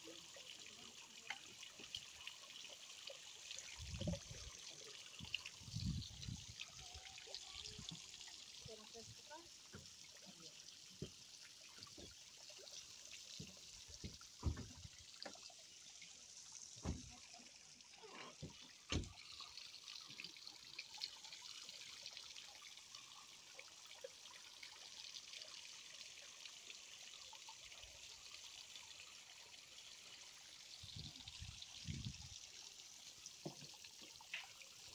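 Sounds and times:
water trickling onto metal grates: 0.0 - 34.9
short dull thumps: 14.0 - 15.3, 16.8 - 17.1.

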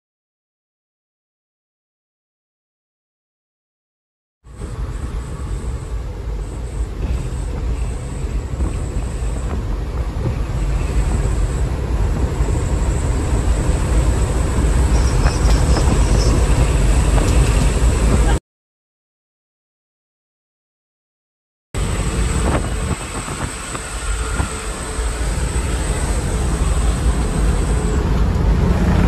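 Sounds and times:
truck engine and road noise: 4.5 - 18.4, 21.8 - 29.0.

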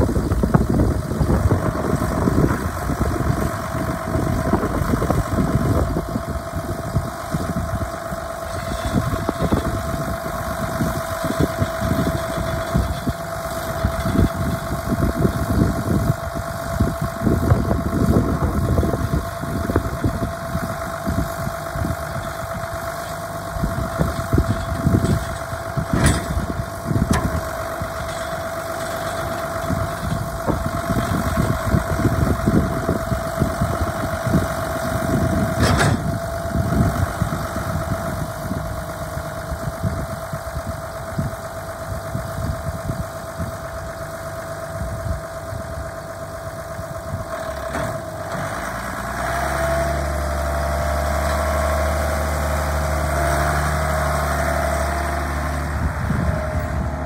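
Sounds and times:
diesel tractor engine: 0.0 - 57.0.

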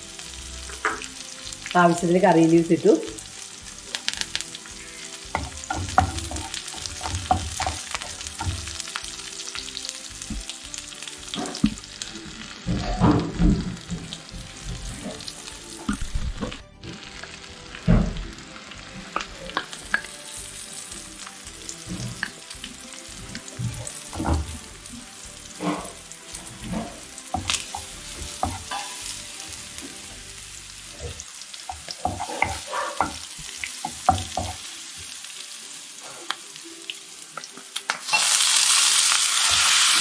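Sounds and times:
spices sizzling in hot oil: 0.0 - 40.0
wooden spatula scraping pan: 4.8 - 9.2, 11.3 - 17.2, 21.8 - 33.4.

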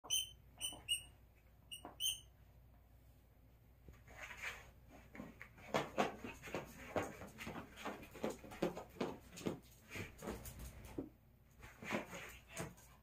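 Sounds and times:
short high squeaks: 0.0 - 2.3.

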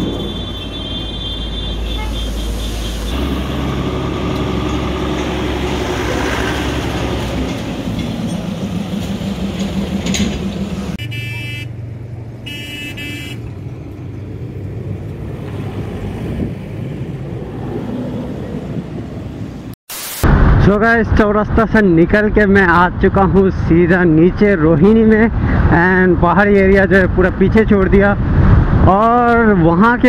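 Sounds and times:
car horn honking: 0.0 - 3.3, 11.0 - 11.8, 12.4 - 13.5
street traffic engines: 0.0 - 19.8, 21.6 - 30.0.

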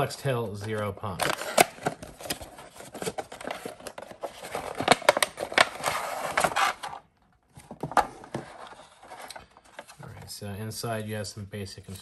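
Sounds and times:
cardboard scraping and rustling: 0.7 - 10.3.

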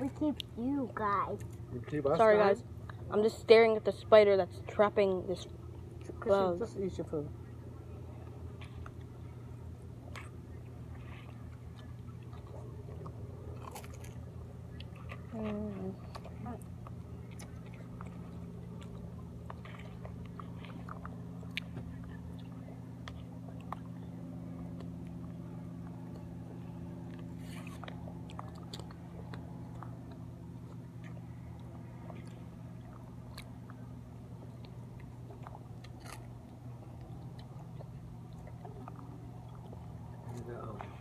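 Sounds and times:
steady low hum: 0.0 - 41.0
mouth eating sounds: 27.4 - 40.9.

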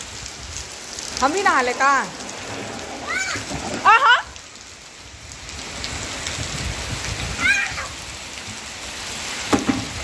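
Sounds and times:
steady rain pouring: 0.0 - 10.0
child's high call: 3.0 - 3.5, 7.3 - 8.1.

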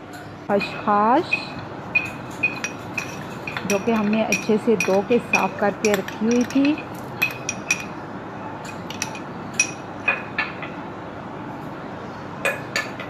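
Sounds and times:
metal spoon clinking against glass bowl: 1.2 - 8.0, 8.6 - 9.8.

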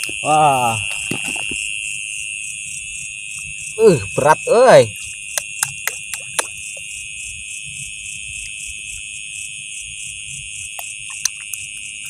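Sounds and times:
night insects trilling: 0.0 - 12.0.

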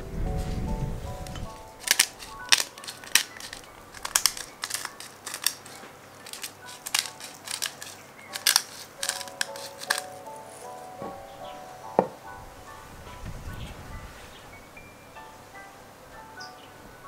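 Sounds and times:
pepper mill grinding: 1.3 - 10.7.

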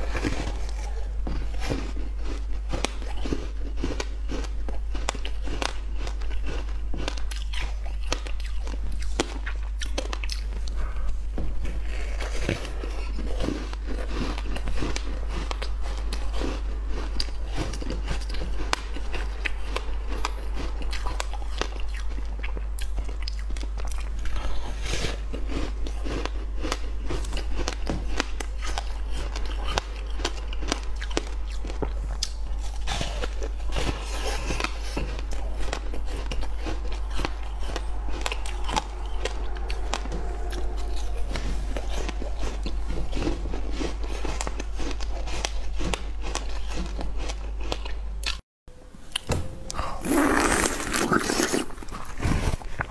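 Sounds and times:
low hum: 0.0 - 52.9
ice crunching between teeth: 49.9 - 52.9.

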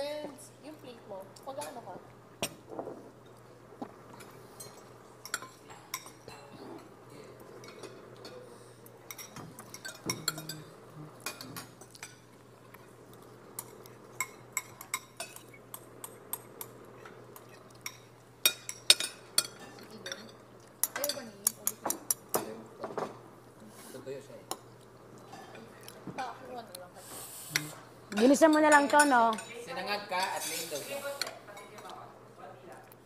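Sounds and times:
steady low hum: 0.0 - 29.7
cutlery clinking against plates: 4.2 - 6.9, 7.6 - 8.5, 9.1 - 12.3, 13.6 - 23.2, 27.6 - 32.0.

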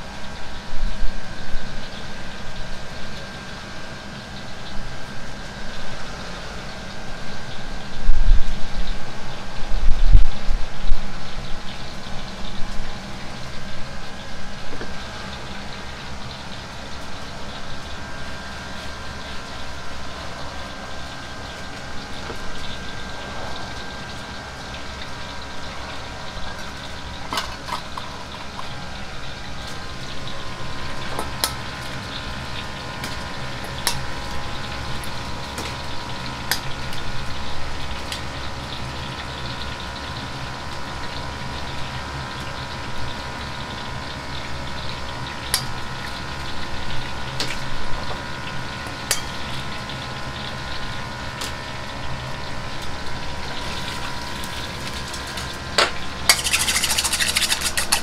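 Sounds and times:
oil sizzling in a wok: 0.0 - 58.0
metal bowls and utensils clicking: 55.8 - 58.0.

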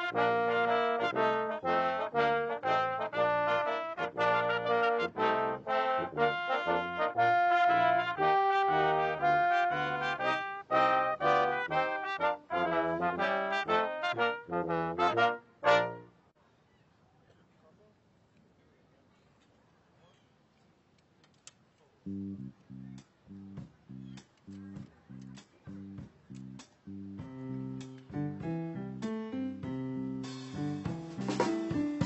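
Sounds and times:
brass band playing: 0.0 - 16.2, 27.2 - 32.0.

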